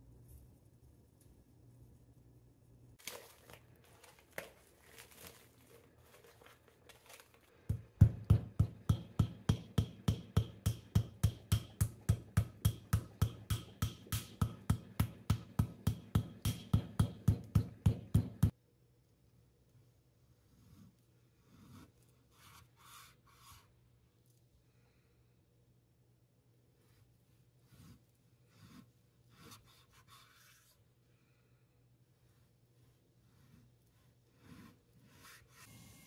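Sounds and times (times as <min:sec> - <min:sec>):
faint handling noises: 0:03.0 - 0:07.7
meat pounded on wooden board: 0:07.7 - 0:18.5.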